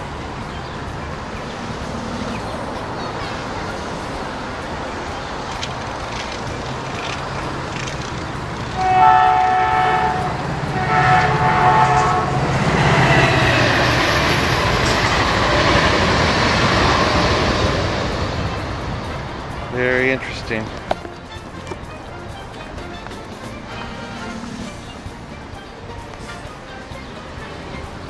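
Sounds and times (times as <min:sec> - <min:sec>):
train passing rumble: 0:00.0 - 0:28.0
train horn blasts: 0:08.7 - 0:13.9.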